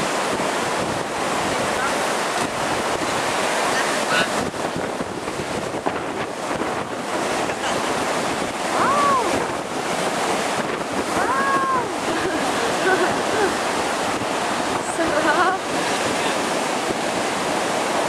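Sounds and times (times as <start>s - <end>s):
surf breaking: 0.0s - 18.0s
wind buffeting microphone: 0.0s - 18.0s
high-pitched shouts: 11.2s - 12.0s.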